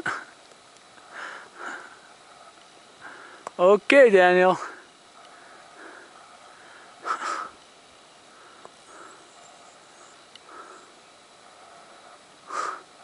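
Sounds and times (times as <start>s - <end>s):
person breathing: 1.0s - 2.2s, 3.0s - 3.5s, 4.6s - 7.6s, 8.2s - 9.4s, 10.0s - 13.0s
sharp breath through nose: 4.8s - 7.6s, 10.4s - 13.0s.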